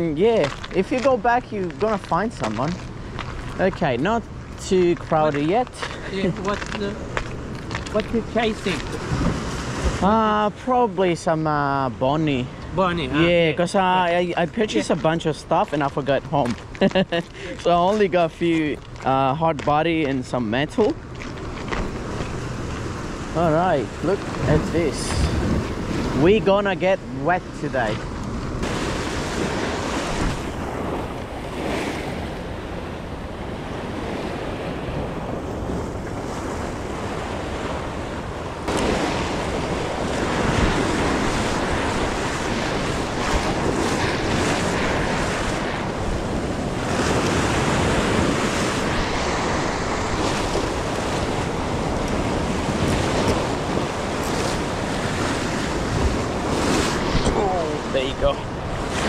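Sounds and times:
ocean surf breaking on rocks: 0:00.0 - 0:59.0
wind on microphone: 0:04.8 - 0:10.1, 0:20.8 - 0:26.6, 0:27.4 - 0:59.0.

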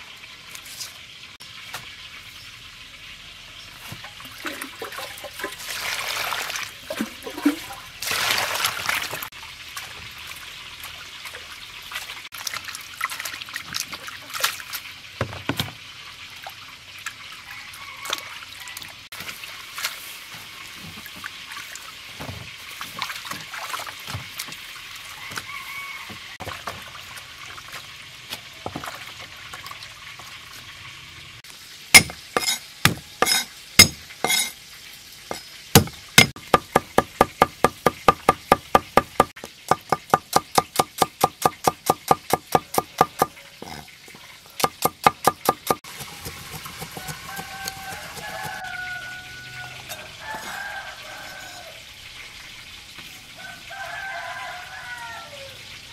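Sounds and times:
water pouring and splashing: 0:00.0 - 0:55.9
cleaver knocking on wooden board: 0:35.3 - 0:43.3.

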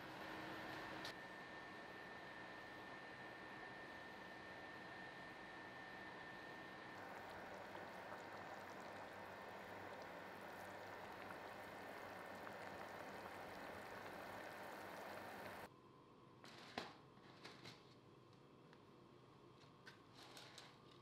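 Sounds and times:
stew bubbling in a pan: 0:07.0 - 0:15.7.

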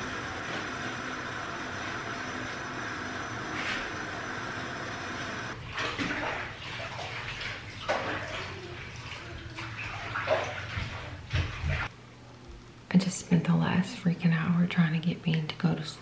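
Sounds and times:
water running into bathtub: 0:00.0 - 0:11.9
water splashing in tub: 0:05.0 - 0:11.9.

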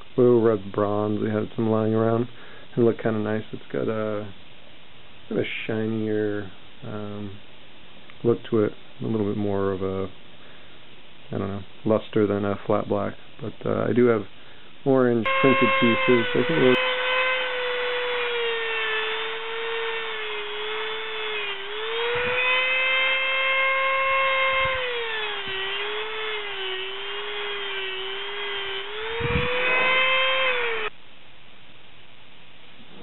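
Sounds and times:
cut-off wheel whining through steel: 0:15.3 - 0:31.0.

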